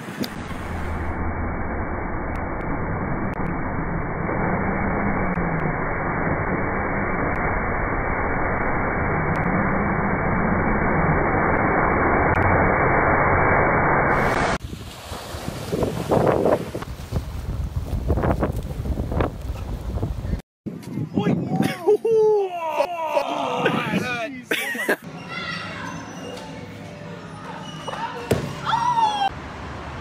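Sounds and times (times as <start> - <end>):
breaking surf: 14.1 - 18.4
strong wind: 14.1 - 22.1, 23.4 - 24.2
wind buffeting on microphone: 14.6 - 21.9.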